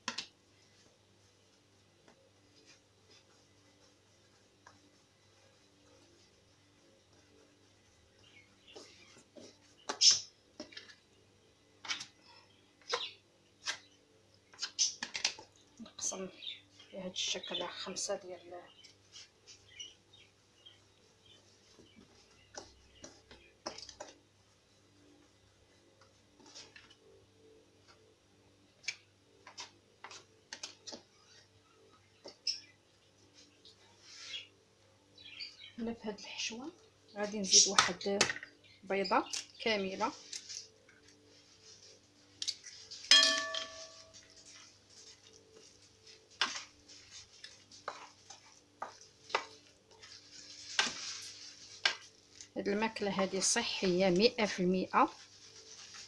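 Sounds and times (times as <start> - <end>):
spoon scraping pan: 46.4 - 52.1.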